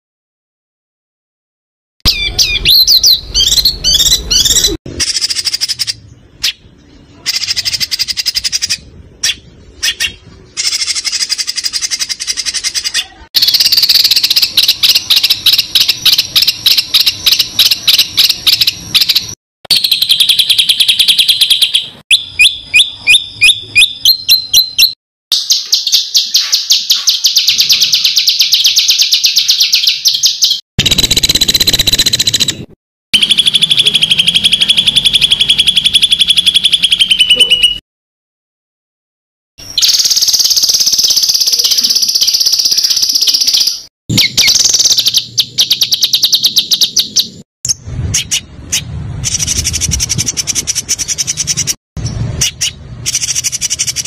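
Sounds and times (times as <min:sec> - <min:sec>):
songbirds trilling and chattering: 0:02.1 - 0:30.6.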